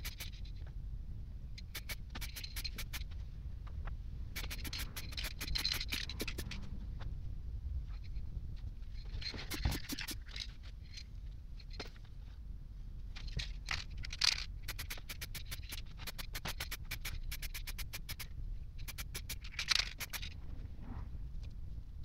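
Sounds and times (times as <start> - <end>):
rapid even clicks: 1.6 - 3.0, 4.4 - 6.6, 14.1 - 20.4
spray-paint can hissing: 1.7 - 3.0, 4.4 - 6.4, 14.6 - 19.4.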